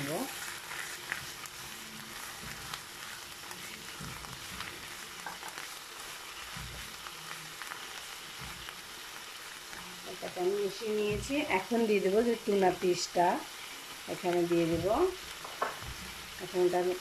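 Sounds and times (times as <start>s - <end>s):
wooden spatula scraping: 0.0s - 8.8s
spinach sizzling in oil: 0.0s - 17.0s.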